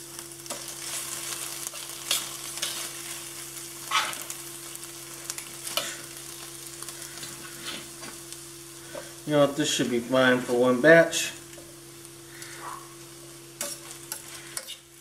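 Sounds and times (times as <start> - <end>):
steady low hum: 0.0 - 15.0
vegetables sizzling in a skillet: 0.0 - 15.0
tongs clicking and scraping on pans: 0.4 - 3.0, 5.3 - 6.2, 13.6 - 14.9.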